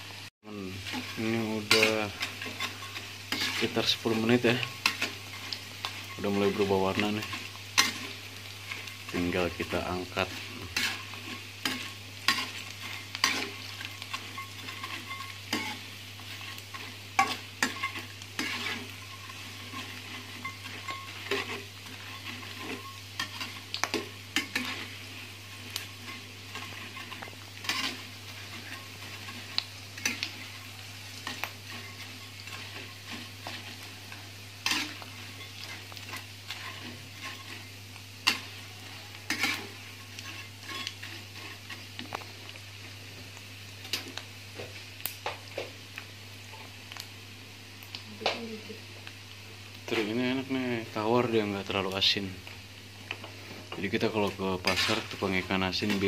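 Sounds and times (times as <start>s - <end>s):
food sizzling in hot oil: 0.0s - 56.0s
spatula knocking and scraping pan: 0.8s - 30.6s.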